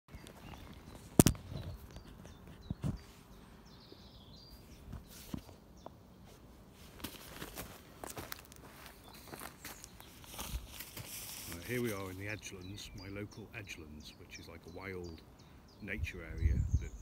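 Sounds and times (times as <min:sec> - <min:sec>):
boots crunching over dry twigs: 0:06.7 - 0:12.3.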